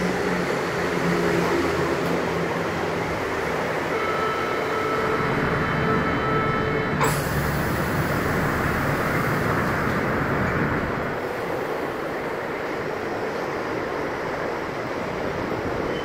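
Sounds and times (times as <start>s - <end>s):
train rolling rumble: 0.0s - 16.0s.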